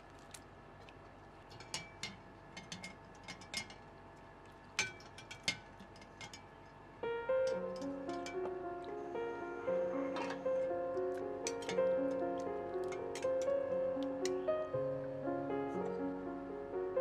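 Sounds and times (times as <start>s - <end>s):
mesh skimmer clinking on glass bowl: 4.8s - 6.6s
background music: 7.0s - 17.0s.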